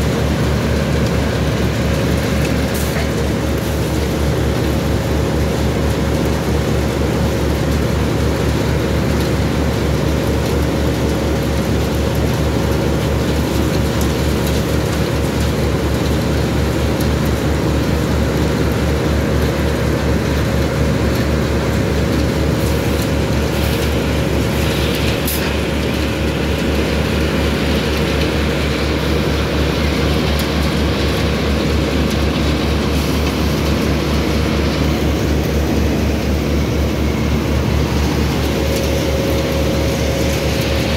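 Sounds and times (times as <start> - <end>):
industrial machinery drone: 0.0 - 40.9
mid-pitched hum: 21.1 - 40.9.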